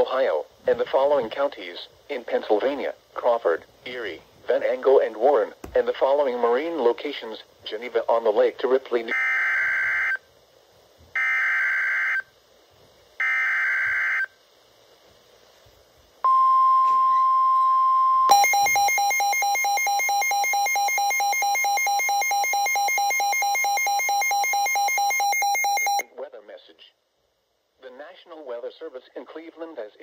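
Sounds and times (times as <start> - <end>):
steady warning alarm tone: 16.3 - 26.0
rapidly pulsing electronic alarm beep: 18.3 - 26.0
warbling data bursts: 18.3 - 26.0.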